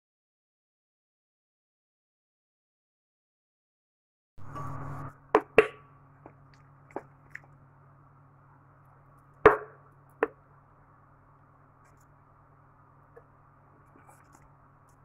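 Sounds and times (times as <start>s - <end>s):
steady low hum: 4.4s - 15.0s.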